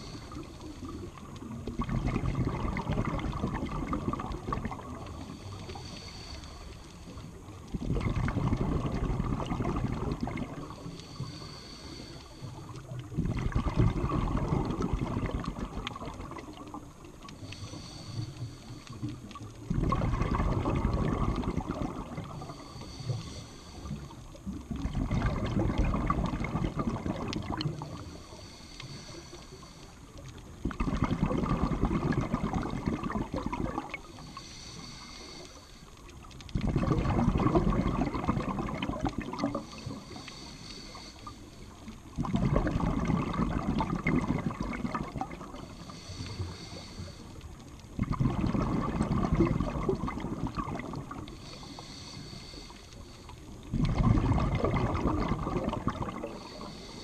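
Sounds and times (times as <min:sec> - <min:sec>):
regulator inhalation hiss: 0:00.0 - 0:01.2, 0:05.0 - 0:07.4, 0:10.7 - 0:12.9, 0:17.3 - 0:19.2, 0:22.2 - 0:24.4, 0:27.8 - 0:30.3, 0:34.0 - 0:36.0, 0:39.5 - 0:41.9, 0:45.6 - 0:47.6, 0:51.2 - 0:53.6, 0:56.2 - 0:57.0
underwater bubbles burbling: 0:00.0 - 0:57.0.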